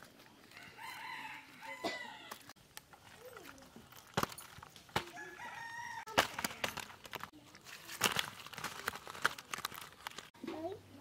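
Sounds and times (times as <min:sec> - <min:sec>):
rooster crowing: 0:00.5 - 0:02.5, 0:05.1 - 0:06.2.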